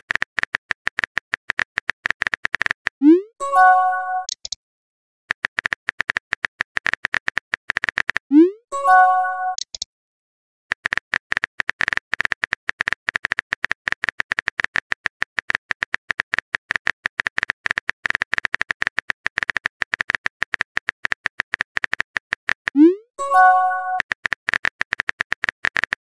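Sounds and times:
phone keyboard typing clicks: 0.0 - 3.0, 5.3 - 8.2, 10.7 - 26.0
message chime: 3.1 - 4.3, 8.7 - 9.6, 22.8 - 24.0.

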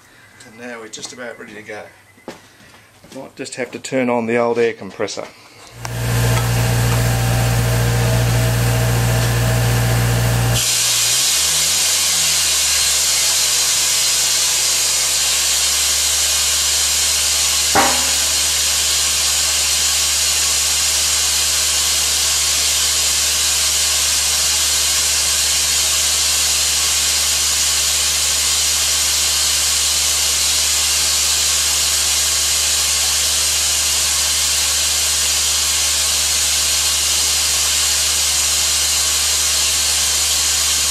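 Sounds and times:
vacuum hiss of rushing air: 5.7 - 27.2
air compressor hum: 5.7 - 40.9
short knock: 17.8 - 18.4.

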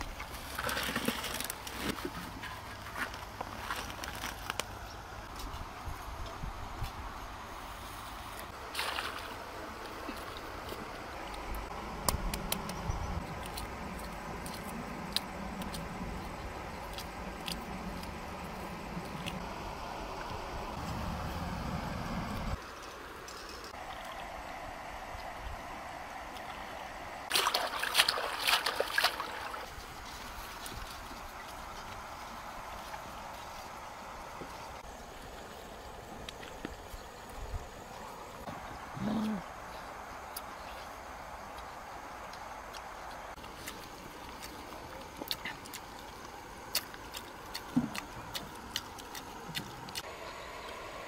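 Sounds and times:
river water trickling: 0.0 - 51.0
basket splashing in water: 8.6 - 9.4, 27.3 - 29.7.

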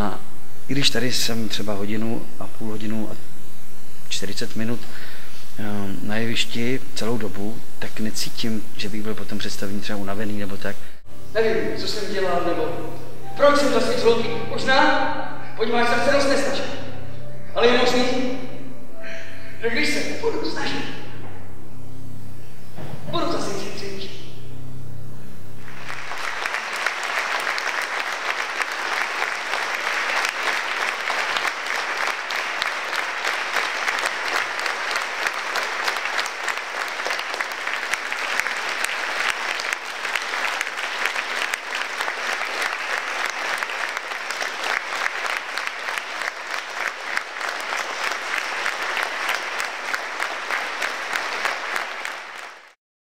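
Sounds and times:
audience applauding: 25.6 - 52.8.

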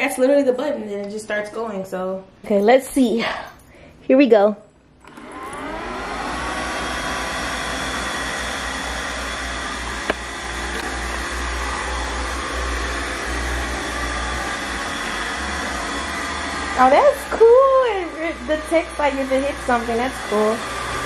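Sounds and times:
robotic vacuum motor whine: 5.0 - 21.0.

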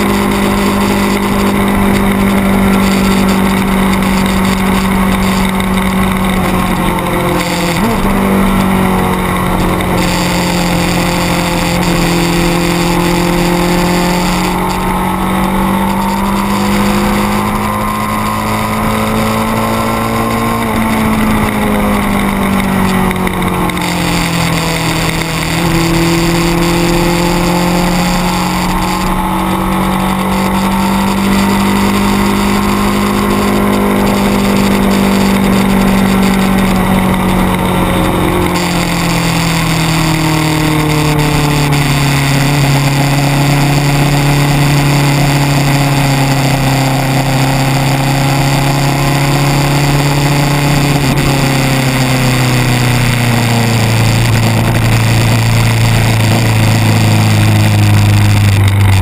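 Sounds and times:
motorcycle engine revs falling: 0.0 - 59.0.

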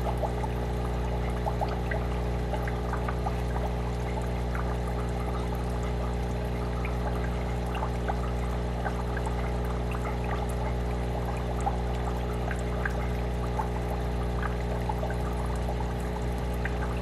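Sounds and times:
aquarium filter bubbling: 0.0 - 17.0
low hum: 15.5 - 17.0.

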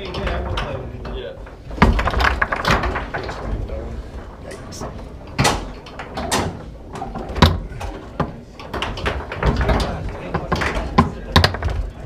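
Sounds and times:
background talk: 0.0 - 12.0
foosball rods banging: 0.0 - 12.0
foosball ball knocking: 1.6 - 3.7, 5.3 - 12.0.

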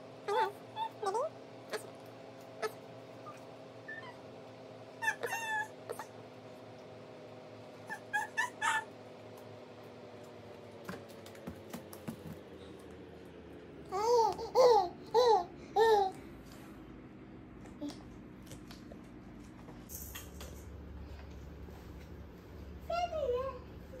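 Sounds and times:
baby babbling: 0.3 - 1.9.

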